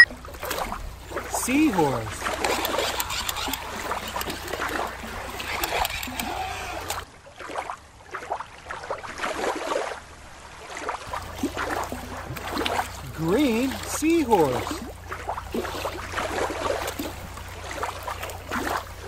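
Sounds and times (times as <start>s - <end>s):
water lapping on rocky shore: 0.0s - 19.0s
faint short calls: 1.3s - 7.0s.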